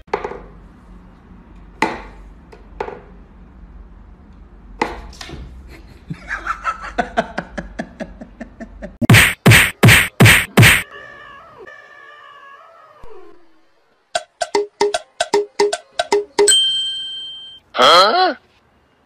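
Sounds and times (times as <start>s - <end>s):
loud whacks: 9.0s - 10.8s
quick repeated pulses: 9.0s - 10.8s.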